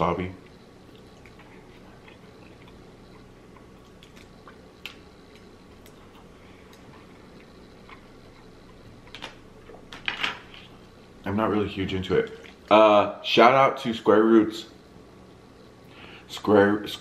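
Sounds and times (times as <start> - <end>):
chewing food: 0.4 - 10.9, 12.2 - 12.7.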